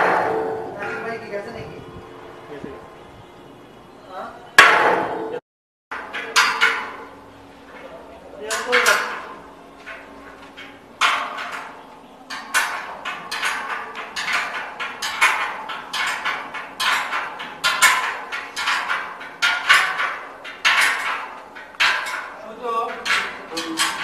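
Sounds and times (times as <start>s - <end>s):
spanner clinking on metal: 12.3s - 24.0s.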